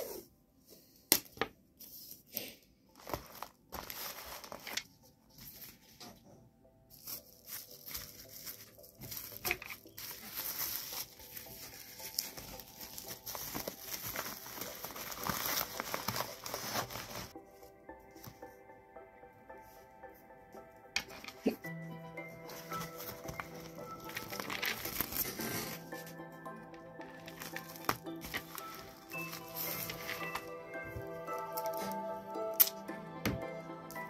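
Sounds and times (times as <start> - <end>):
plastic bag crinkling: 3.0 - 5.9, 6.9 - 17.4, 22.5 - 31.8.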